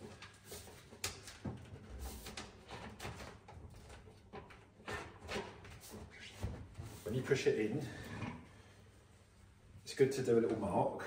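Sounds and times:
plastic scraping and knocking: 0.0 - 7.2.

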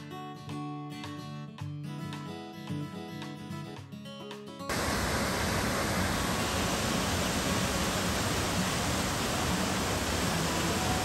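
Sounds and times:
running water rushing: 4.7 - 11.0.

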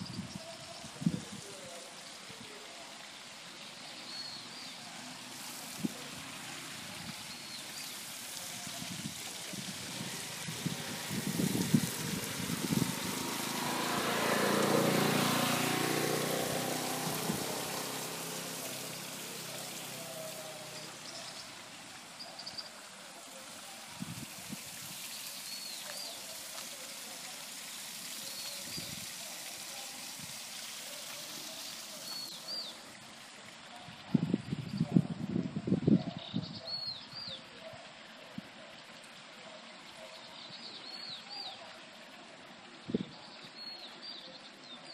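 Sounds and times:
small waterfall splashing: 0.0 - 44.9
vehicle passing: 10.0 - 21.0.

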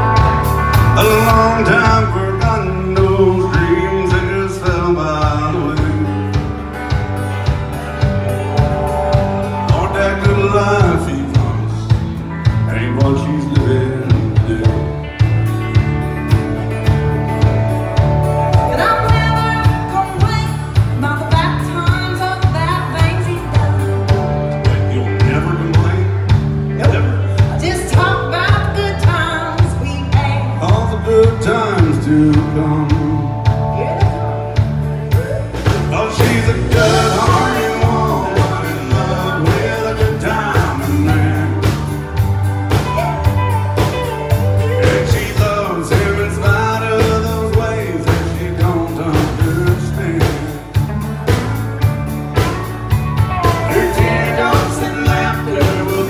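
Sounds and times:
bass line: 0.0 - 56.0
country song with band: 0.0 - 56.0
drums beating: 0.0 - 56.0.

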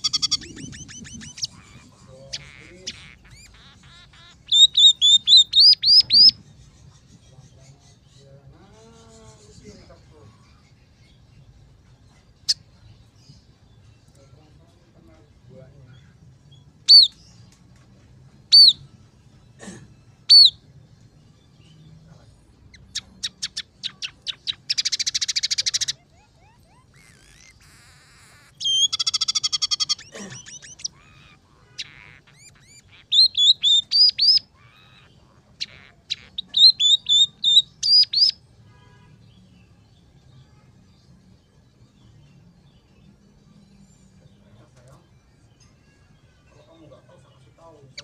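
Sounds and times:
bird singing whistles and trills: 0.0 - 6.5, 16.8 - 17.2, 18.5 - 18.8, 20.3 - 20.6, 22.8 - 35.1, 36.1 - 38.4.

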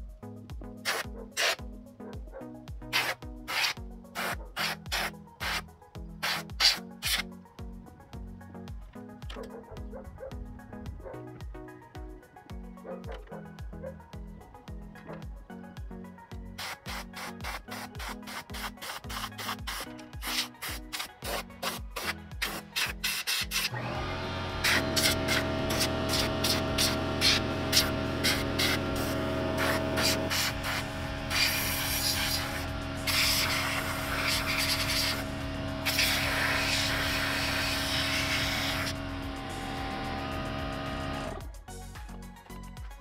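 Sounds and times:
air blow gun bursts: 0.8 - 1.6, 2.9 - 7.2, 16.6 - 41.4
compressor motor humming: 23.6 - 41.5.

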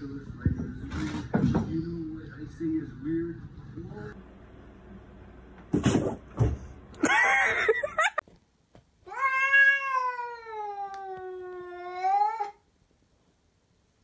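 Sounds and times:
clattering and thumps: 0.3 - 1.8
cat yowling: 9.1 - 12.6.

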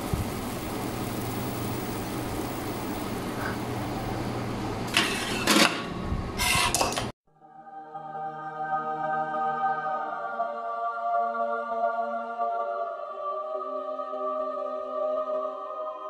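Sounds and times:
low hum: 0.0 - 5.0.

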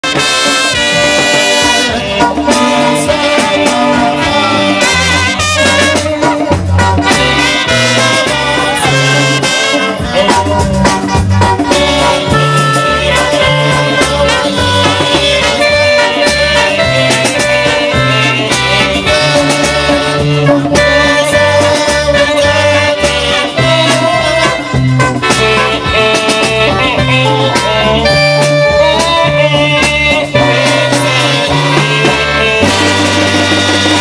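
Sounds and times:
bass line: 0.0 - 34.0
lively band music: 0.0 - 34.0.

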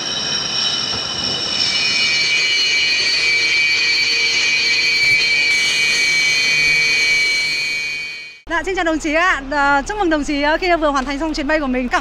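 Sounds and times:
jet engines whining: 0.0 - 8.5.

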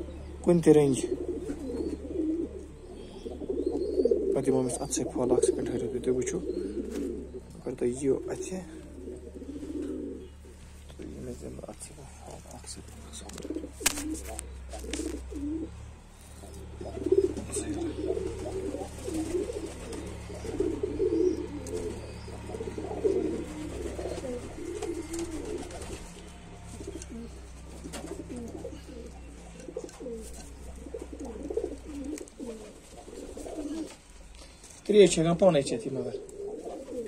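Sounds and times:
pigeons cooing: 0.0 - 37.0
sharp clicks: 13.2 - 15.2.

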